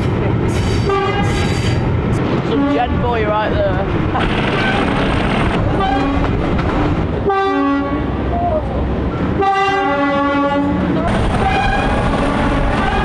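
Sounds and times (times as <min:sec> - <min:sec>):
moving train rumble and clatter: 0:00.0 - 0:13.0
train two-tone horn: 0:00.7 - 0:01.8, 0:05.8 - 0:06.3, 0:07.2 - 0:08.2, 0:09.4 - 0:13.0.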